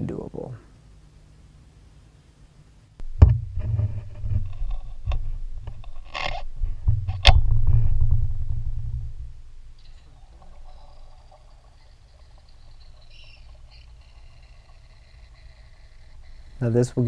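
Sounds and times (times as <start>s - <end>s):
sharp knocks: 3.0s - 4.4s
camera handling rumble: 3.6s - 7.9s.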